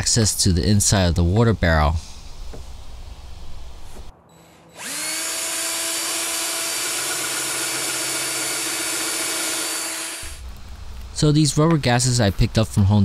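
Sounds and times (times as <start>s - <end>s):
cordless drill whining: 4.6s - 10.4s.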